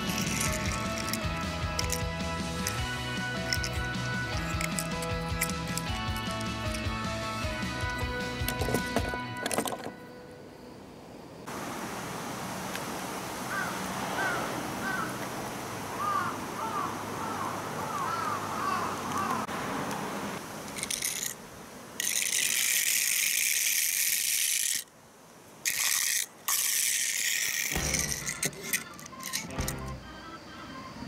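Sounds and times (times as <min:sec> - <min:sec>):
toy car rattling over concrete: 0:00.0 - 0:07.0, 0:07.7 - 0:10.0, 0:20.7 - 0:21.4, 0:22.0 - 0:24.9, 0:25.6 - 0:29.9
outdoor noise: 0:00.0 - 0:31.0.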